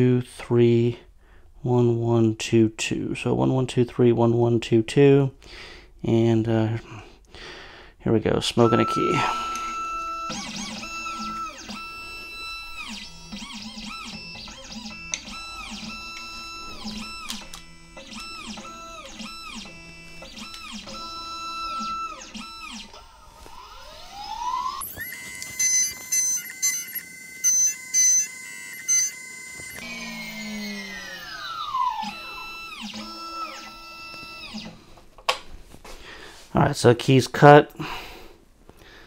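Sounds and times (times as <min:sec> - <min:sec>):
machine motors whining: 0:08.6 - 0:35.0
cutter spinning up: 0:09.4 - 0:34.8
cutter milling metal: 0:09.5 - 0:34.7.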